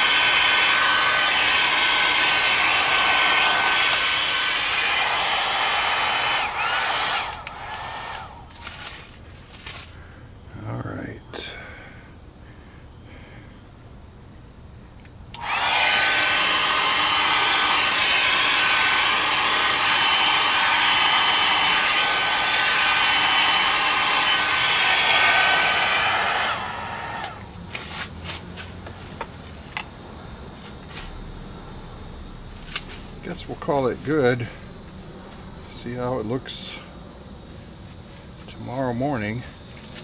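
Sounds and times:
hot-air blower motor whining: 0:00.0 - 0:09.0, 0:15.4 - 0:27.5.

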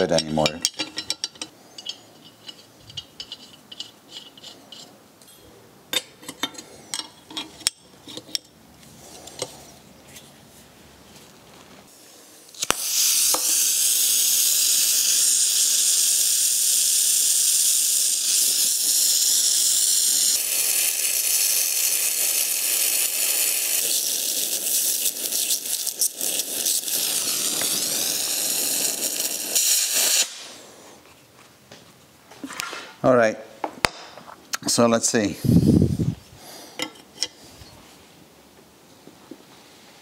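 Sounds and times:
blowtorch flame hissing: 0:11.9 - 0:31.0, 0:35.4 - 0:37.5
blowtorch ignition click: 0:12.5 - 0:14.0, 0:25.0 - 0:30.6.

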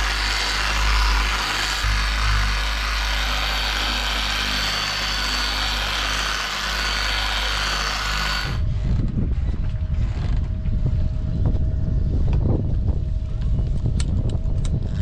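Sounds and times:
electric polisher running: 0:00.0 - 0:09.0
wind buffeting microphone: 0:08.1 - 0:15.0.

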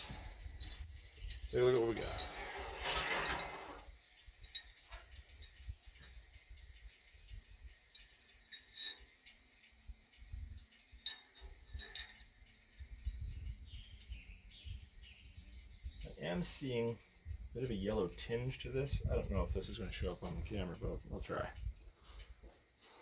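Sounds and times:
metal utensil clinking on saucepan: 0:11.0 - 0:12.2.

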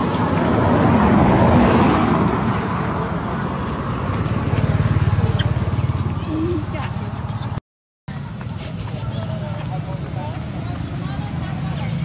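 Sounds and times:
vehicle engine rumbling: 0:00.0 - 0:12.0.

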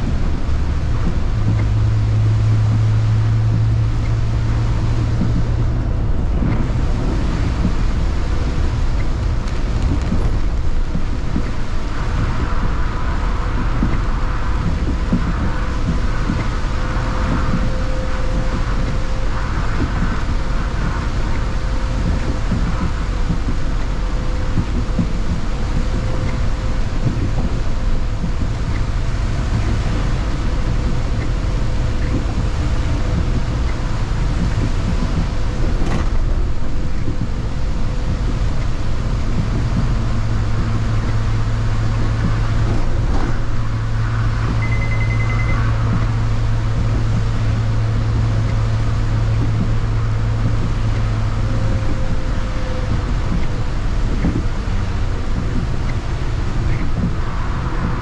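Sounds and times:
bus engine and road rumble: 0:00.0 - 0:58.0
low drive hum: 0:00.0 - 0:58.0
short high beep: 0:44.6 - 0:45.7.

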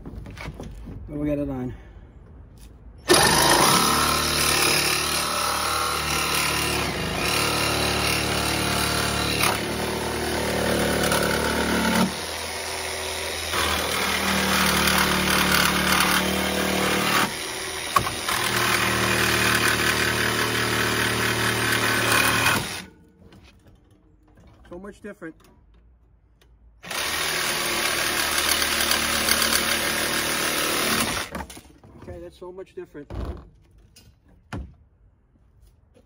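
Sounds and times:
jigsaw sawing through steel wire: 0:03.1 - 0:22.9, 0:26.8 - 0:31.6.

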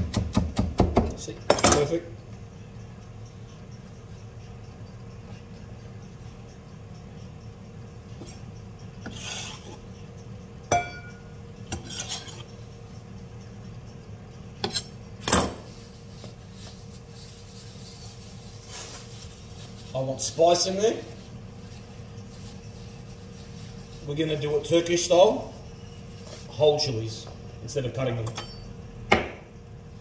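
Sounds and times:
sharp ringing clink: 0:10.7 - 0:11.4, 0:28.3 - 0:28.8.

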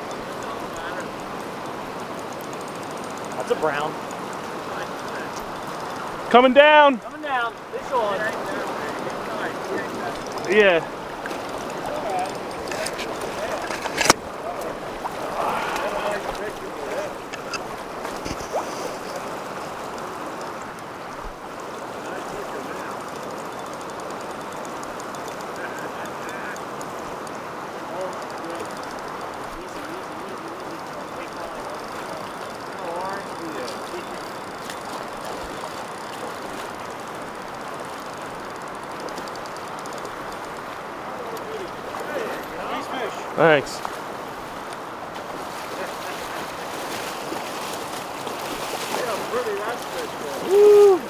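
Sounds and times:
creek water rushing over rocks: 0:00.0 - 0:51.0.

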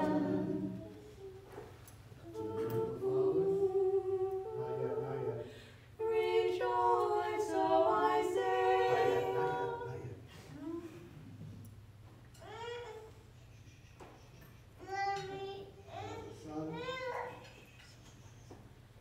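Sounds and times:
small choir singing chords: 0:00.0 - 0:01.4, 0:02.2 - 0:10.3.

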